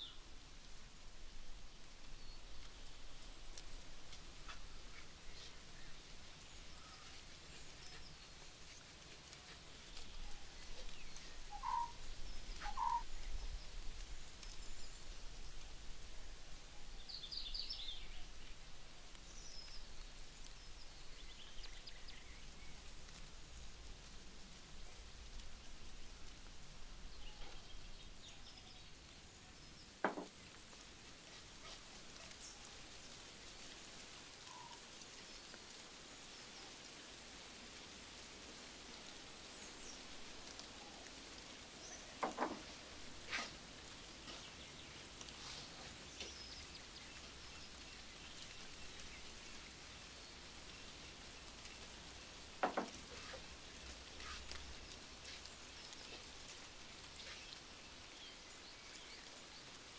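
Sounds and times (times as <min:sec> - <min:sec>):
faint background hiss: 0:00.0 - 0:59.9
sharp knocks: 0:30.0 - 0:30.3.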